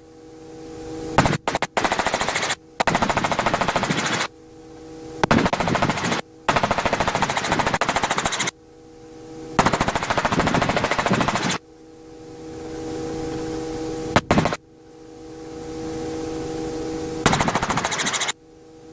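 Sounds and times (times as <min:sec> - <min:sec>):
steady hum: 0:00.0 - 0:18.9
helicopter rotor chop: 0:01.2 - 0:04.4, 0:05.2 - 0:08.6, 0:09.5 - 0:11.6, 0:14.0 - 0:14.6, 0:17.1 - 0:18.4.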